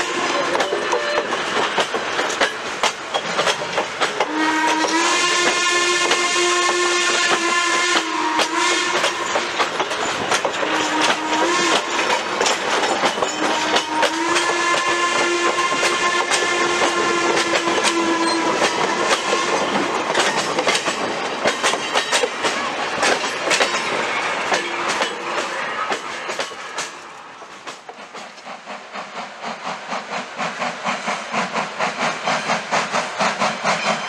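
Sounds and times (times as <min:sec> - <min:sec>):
steam whistle blasts: 0:00.0 - 0:01.4, 0:04.2 - 0:09.4, 0:10.6 - 0:12.1, 0:13.1 - 0:19.8, 0:32.0 - 0:34.0
train wheels clicking over rail joints: 0:00.0 - 0:34.0.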